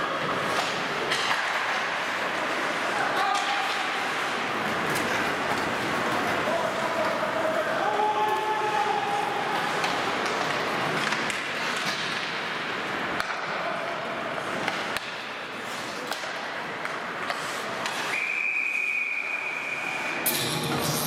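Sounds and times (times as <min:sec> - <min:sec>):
hockey sticks and puck clacking: 0:00.0 - 0:21.0
skates scraping on ice: 0:00.0 - 0:21.0
voices echoing in a hall: 0:00.0 - 0:21.0
skates hissing on ice: 0:15.5 - 0:16.1, 0:17.1 - 0:21.0
referee's whistle: 0:18.1 - 0:20.2.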